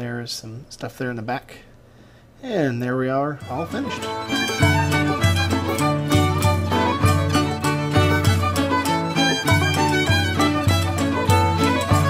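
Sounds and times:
fiddle playing a lively tune: 3.4s - 12.0s
steady beat: 3.5s - 12.0s.

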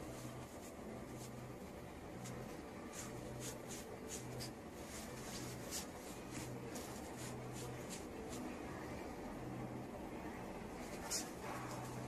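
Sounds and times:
fabric rustling: 0.0s - 8.7s.

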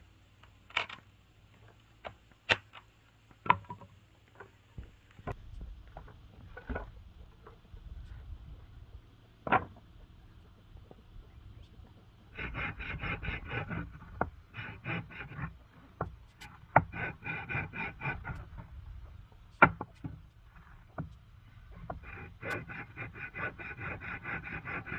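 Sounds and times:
scraping strokes on wood: 10.5s - 24.9s.

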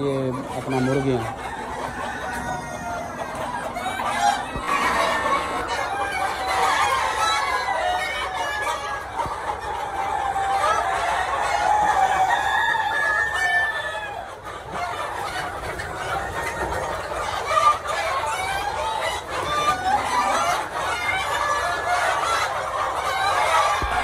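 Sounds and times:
hens clucking: 0.1s - 5.8s, 23.8s - 24.0s
rooster crowing: 4.5s - 5.8s, 23.8s - 24.0s.

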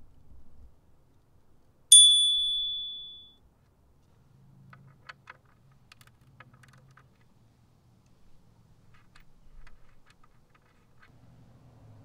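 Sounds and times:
metallic ping: 1.9s - 3.4s.

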